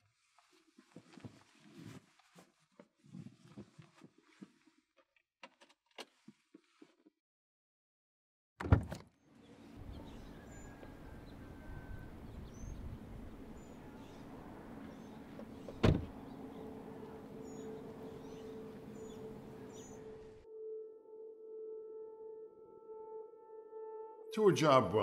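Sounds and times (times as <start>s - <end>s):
birds chirping faintly: 9.3s - 20.4s
truck idling: 9.7s - 20.4s
truck door clunk: 15.3s - 16.2s
low music drone: 16.2s - 25.0s.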